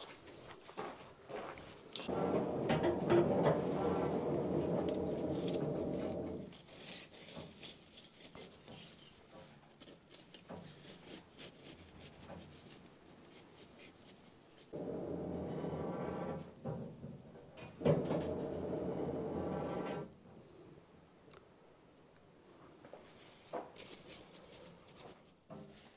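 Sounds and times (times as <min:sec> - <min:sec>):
tongs scraping and clicking: 0:04.9 - 0:12.8.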